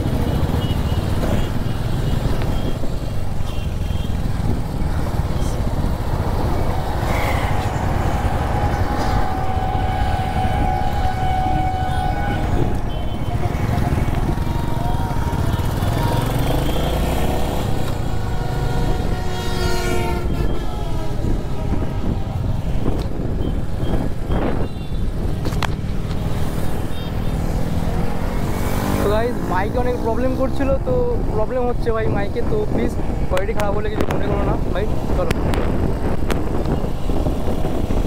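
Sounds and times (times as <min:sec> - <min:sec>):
motorcycle engine rumbling: 0:00.0 - 0:31.4
vehicle horns honking: 0:00.3 - 0:04.4, 0:06.4 - 0:22.2, 0:23.3 - 0:25.2, 0:26.8 - 0:27.4
wind on microphone: 0:04.2 - 0:16.3, 0:17.1 - 0:29.1, 0:31.1 - 0:38.0.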